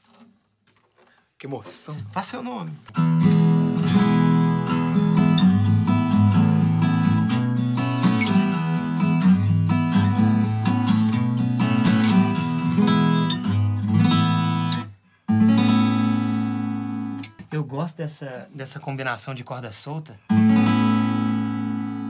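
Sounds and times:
acoustic guitar chords: 2.8 - 17.5, 20.2 - 22.0.

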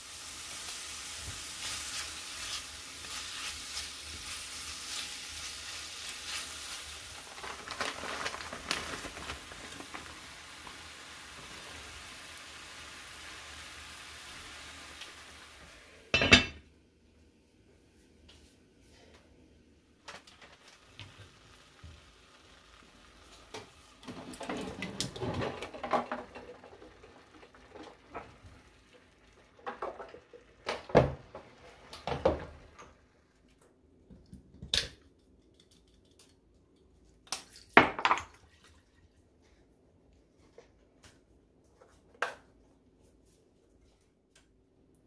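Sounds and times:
pots and dishes clattering: 16.2 - 16.6, 24.0 - 28.3.

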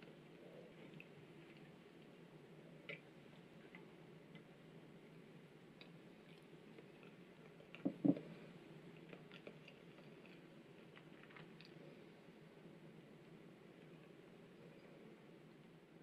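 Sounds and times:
chewing noises: 8.9 - 11.8.

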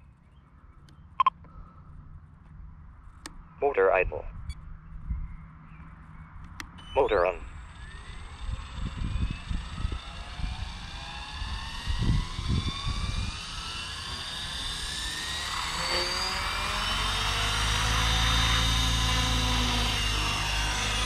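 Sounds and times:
motor and gear whine: 5.8 - 21.0.

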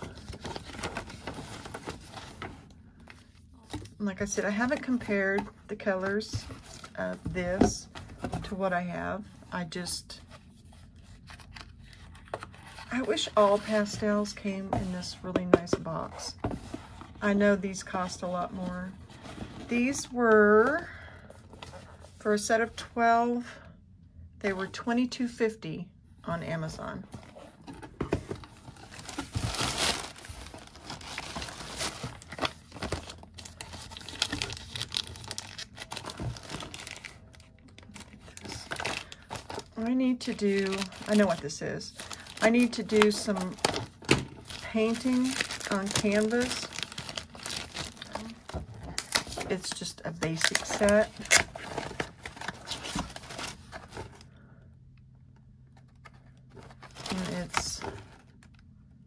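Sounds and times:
cardboard and cellophane rustling: 0.0 - 22.9, 26.3 - 54.4, 55.7 - 58.6
plastic packaging crinkling: 28.4 - 54.2, 55.9 - 58.6.

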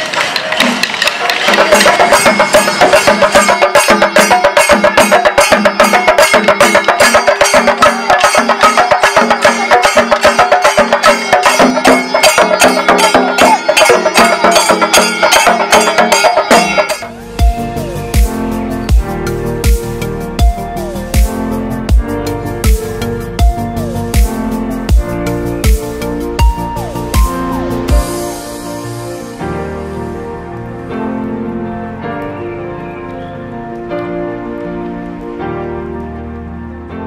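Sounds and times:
drums beaten with sticks: 0.0 - 28.4
deep electronic bass beat: 17.1 - 28.2
repeating melody: 24.9 - 28.3.

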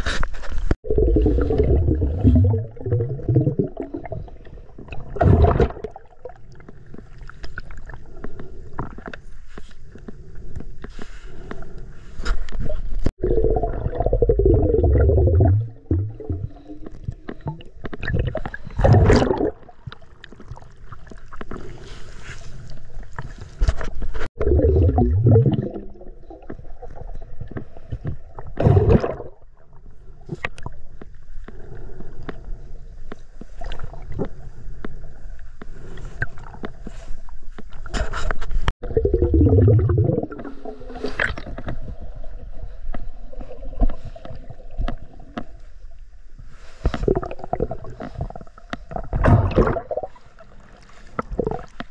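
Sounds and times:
water gurgling underwater: 0.8 - 6.6, 13.2 - 21.2, 24.4 - 27.6, 28.2 - 29.7, 38.8 - 42.2, 47.0 - 51.8.

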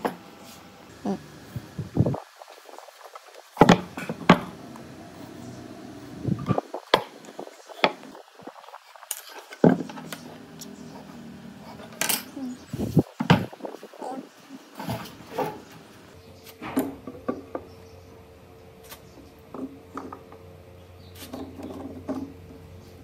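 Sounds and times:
wood and hand tools clattering: 8.9 - 12.4.

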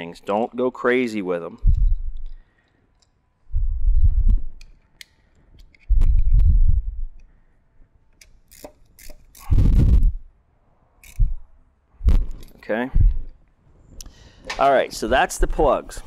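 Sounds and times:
heavy low rumbling thumps: 1.6 - 2.2, 3.5 - 4.6, 5.9 - 7.2, 9.5 - 10.3, 11.2 - 13.4.

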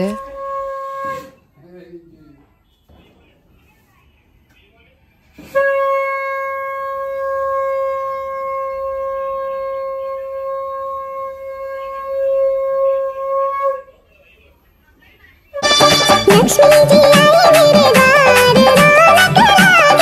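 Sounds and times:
conch shell blown: 0.0 - 1.5, 5.4 - 13.9, 15.6 - 20.0.

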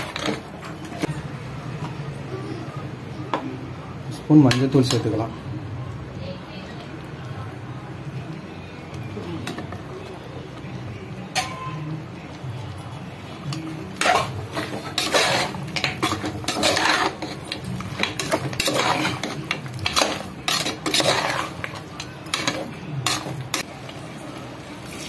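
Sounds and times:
ladle scraping metal pot: 0.0 - 1.0, 13.6 - 23.7.

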